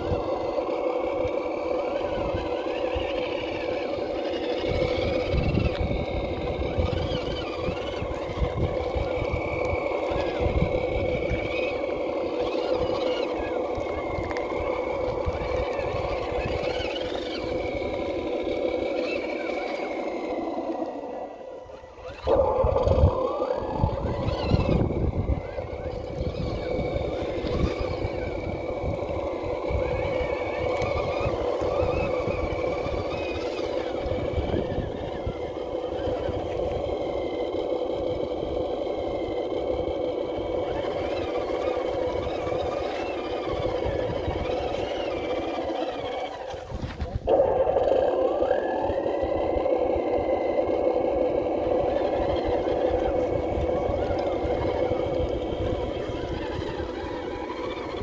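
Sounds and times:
rc truck motor whine: 0.0 - 58.0.

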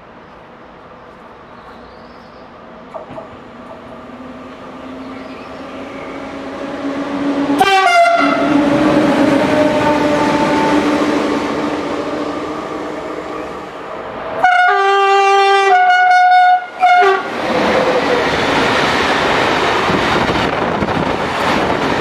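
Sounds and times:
train rushing past with electric whine: 0.0 - 22.0
train horn blast: 4.9 - 13.6, 14.4 - 17.4.

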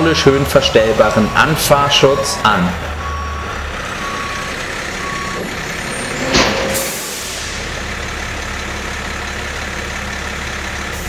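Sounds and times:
lorry engine idling: 0.0 - 11.0
reversing beep: 0.4 - 6.9
truck thudding against dock bumper: 5.2 - 7.2
air brakes hissing: 5.3 - 7.9.

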